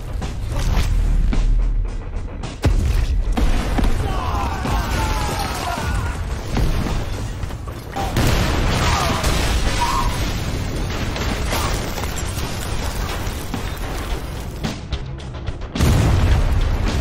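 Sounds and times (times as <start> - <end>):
explosions with deep rumble: 8.0 - 14.5, 15.8 - 17.0.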